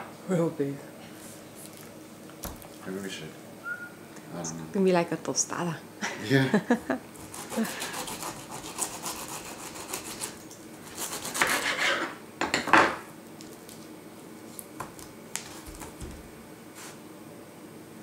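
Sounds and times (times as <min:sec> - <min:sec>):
knife cutting through pineapple: 0:07.2 - 0:12.0.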